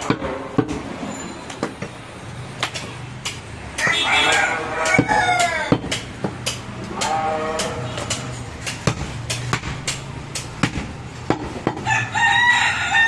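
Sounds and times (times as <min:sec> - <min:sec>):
cleaver chopping meat and bone: 0:02.6 - 0:11.9
rooster crowing: 0:03.8 - 0:05.8, 0:11.8 - 0:13.0.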